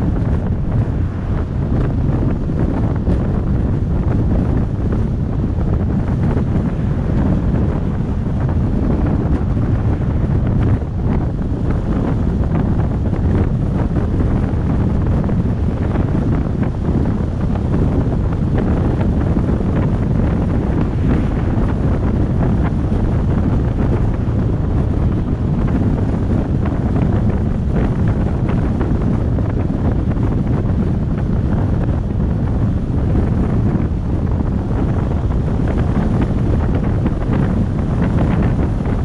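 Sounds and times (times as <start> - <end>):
truck road rumble: 0.0 - 39.0
wind buffeting microphone: 0.0 - 39.0.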